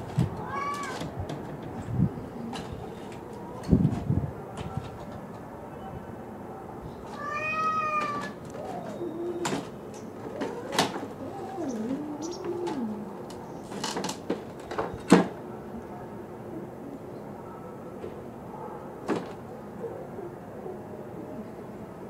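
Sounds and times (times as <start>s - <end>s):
cats meowing: 0.2s - 1.1s, 7.0s - 13.2s.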